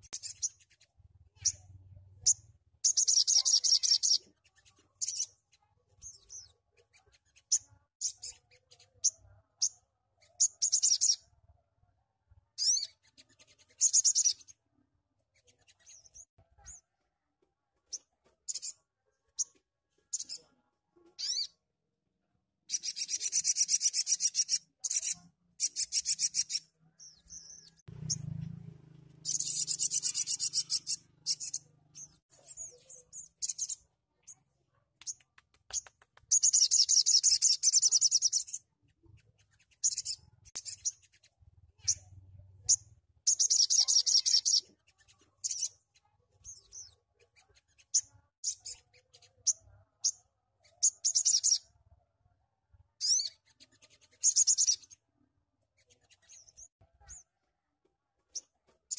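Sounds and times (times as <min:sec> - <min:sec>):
bird singing high-pitched trills: 0:01.4 - 0:04.2, 0:07.5 - 0:11.2, 0:12.6 - 0:13.0, 0:21.2 - 0:21.6, 0:22.7 - 0:28.3, 0:29.2 - 0:33.8, 0:36.3 - 0:38.6, 0:41.8 - 0:44.7, 0:50.8 - 0:51.7, 0:53.0 - 0:53.4.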